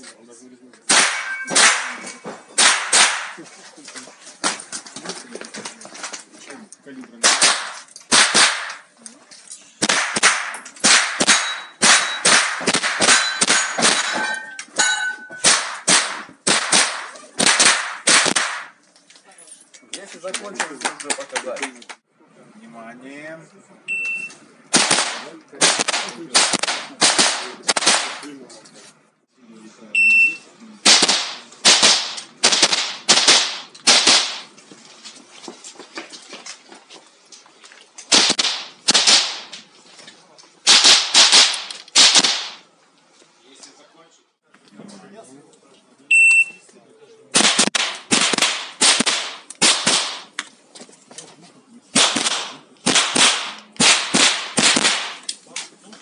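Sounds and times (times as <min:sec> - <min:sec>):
rifle shots echoing: 0:00.9 - 0:02.0, 0:02.6 - 0:03.4, 0:07.2 - 0:08.8, 0:09.8 - 0:14.2, 0:15.4 - 0:18.8, 0:24.7 - 0:28.3, 0:30.8 - 0:34.5, 0:38.1 - 0:39.5, 0:40.7 - 0:42.6, 0:47.4 - 0:50.3, 0:52.0 - 0:55.2
steel targets ringing: 0:01.0 - 0:02.2, 0:11.2 - 0:12.4, 0:13.1 - 0:15.6
shot timer beep: 0:23.9 - 0:24.4, 0:30.0 - 0:30.4, 0:46.1 - 0:46.6.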